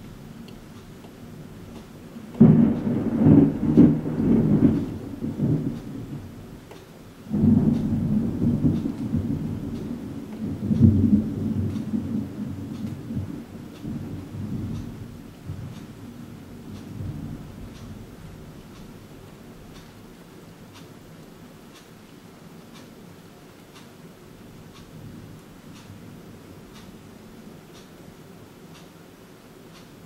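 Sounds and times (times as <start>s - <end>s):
thunder cracking and rumbling: 1.5s - 19.1s.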